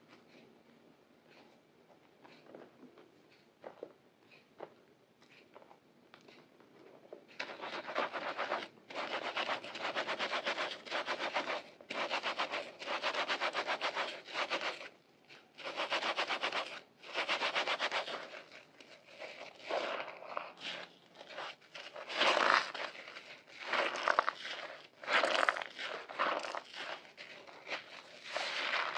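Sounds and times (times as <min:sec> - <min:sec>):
sponge scratchy rubbing: 0:07.4 - 0:28.9.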